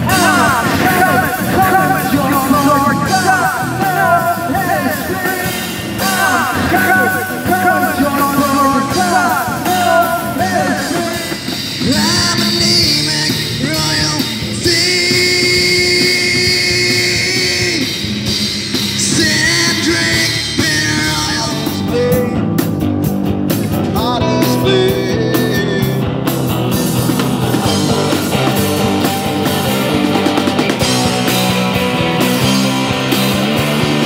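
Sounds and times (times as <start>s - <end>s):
live rock band playing: 0.0s - 34.0s
electric guitar bending notes: 6.5s - 9.1s.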